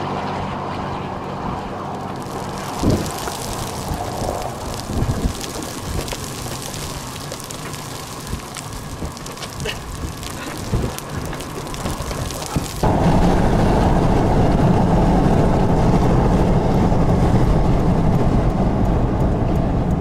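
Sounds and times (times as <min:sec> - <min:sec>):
wind buffeting microphone: 0:01.5 - 0:20.0
wind noise: 0:01.5 - 0:20.0
steady rain: 0:01.8 - 0:20.0
sharp ticks of raindrops: 0:01.9 - 0:12.9, 0:16.0 - 0:20.0.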